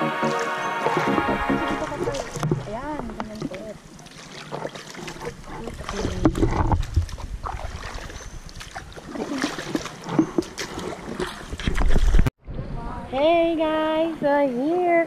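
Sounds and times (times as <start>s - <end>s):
kayak paddles splashing: 0.0s - 12.3s
running water: 0.0s - 12.3s.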